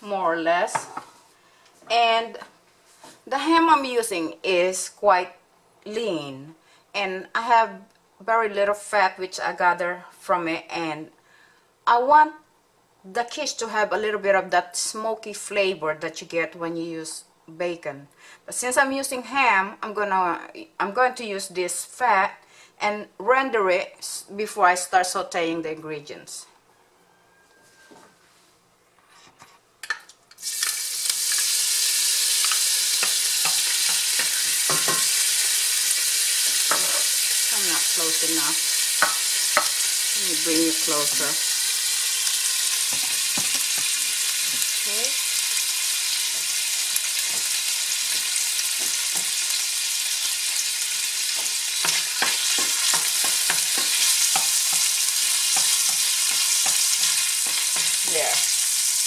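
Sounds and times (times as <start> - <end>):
fat sizzling in a pan: 30.3 - 59.0
wooden spatula knocking on pan: 33.0 - 35.1, 42.9 - 44.6, 47.2 - 49.4, 51.3 - 58.2.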